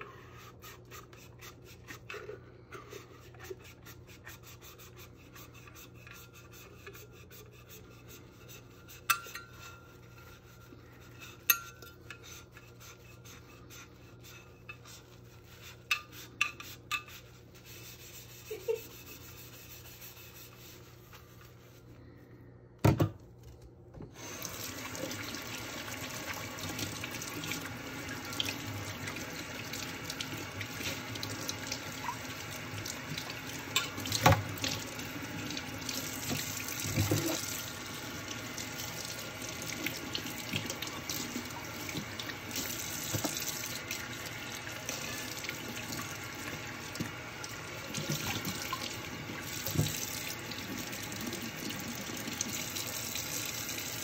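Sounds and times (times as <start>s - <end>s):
faucet running into steel sink: 24.2s - 54.0s.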